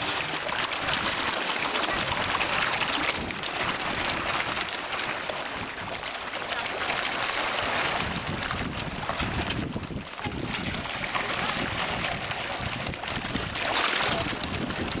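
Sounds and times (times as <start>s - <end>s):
fish thrashing and splashing in water: 0.0s - 15.0s
wind buffeting microphone: 7.8s - 15.0s.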